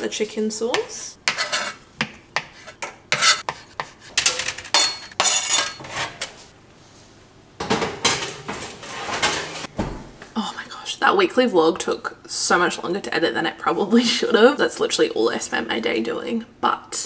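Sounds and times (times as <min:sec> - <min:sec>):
baking tray scraping into oven: 0:08.2 - 0:09.7.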